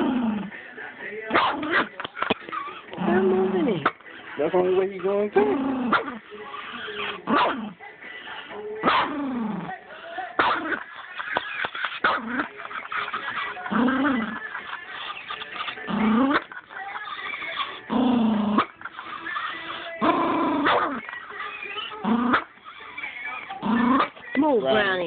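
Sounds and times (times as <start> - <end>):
small dog growling and snarling: 0.0 - 0.5, 1.3 - 4.0, 5.3 - 7.8, 8.8 - 9.8, 11.8 - 12.5, 13.6 - 14.4, 15.8 - 21.1, 21.7 - 24.2.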